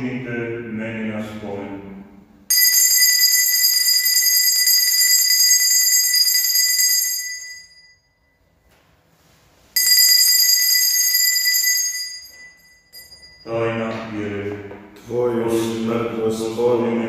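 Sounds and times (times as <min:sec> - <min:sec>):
altar bells ringing: 0:02.5 - 0:08.6, 0:09.8 - 0:14.1.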